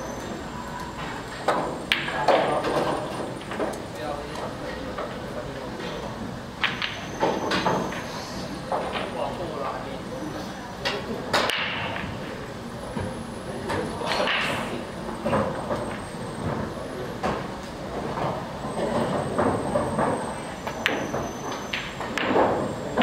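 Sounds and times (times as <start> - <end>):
indistinct chatter: 0.0 - 23.0
billiard balls clicking: 6.6 - 8.1.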